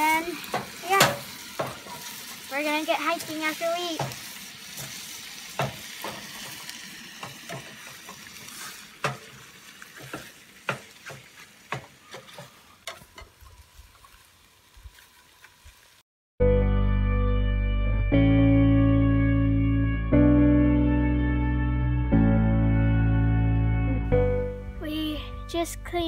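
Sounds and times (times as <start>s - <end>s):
bacon sizzling in a pan: 0.0s - 16.0s.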